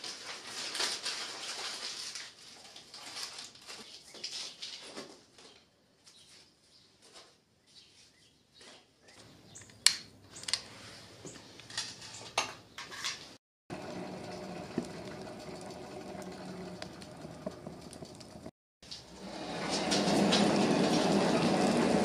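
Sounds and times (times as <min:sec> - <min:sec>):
paper and cardboard crackling: 0:00.0 - 0:05.6
air blower hum: 0:13.7 - 0:18.5, 0:19.1 - 0:22.0.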